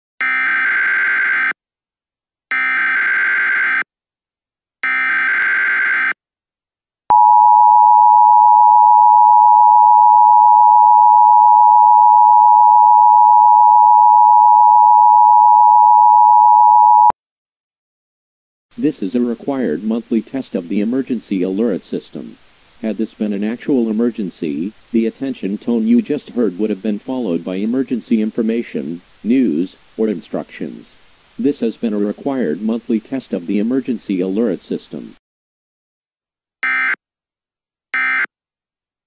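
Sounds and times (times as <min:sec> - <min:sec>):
two-tone attention signal: 0:38.0 - 0:38.3.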